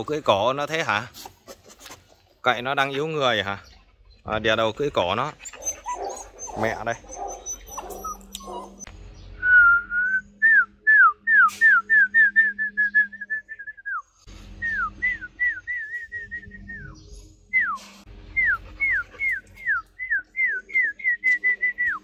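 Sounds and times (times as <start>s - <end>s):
person whistling: 9.4s - 14.0s, 14.6s - 17.0s, 18.4s - 22.0s.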